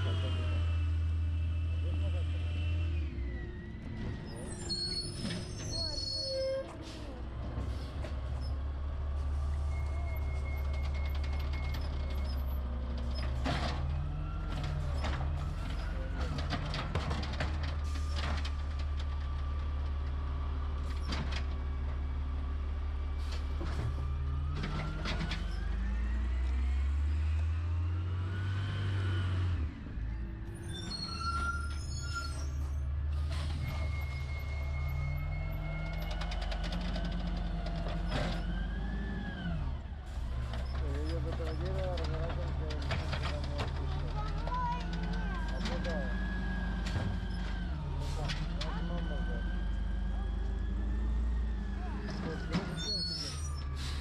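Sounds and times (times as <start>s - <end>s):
brakes squealing: 0.0s - 54.0s
garbage truck diesel engine: 0.0s - 54.0s
knocks and clatter: 16.2s - 19.4s.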